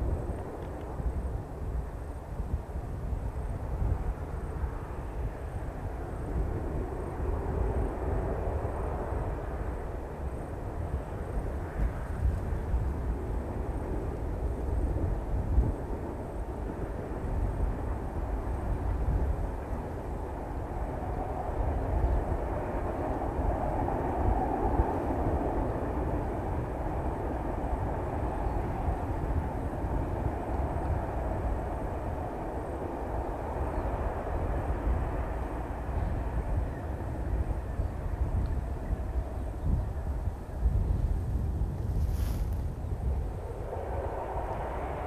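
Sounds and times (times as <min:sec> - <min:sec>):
distant diesel locomotives rumbling: 0:00.0 - 0:45.0
gusty low noise: 0:30.1 - 0:45.0.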